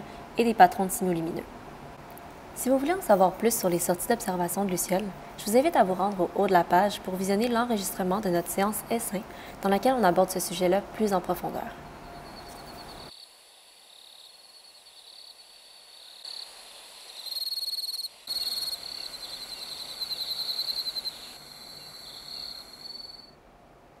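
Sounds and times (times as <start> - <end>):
crickets trilling: 11.8 - 23.4.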